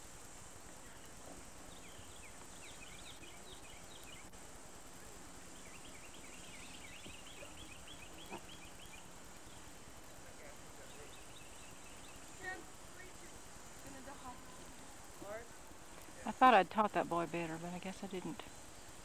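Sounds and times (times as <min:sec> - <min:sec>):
steady background hiss: 0:00.0 - 0:19.0
bird chirping: 0:00.7 - 0:04.3, 0:05.4 - 0:09.8, 0:10.4 - 0:14.9.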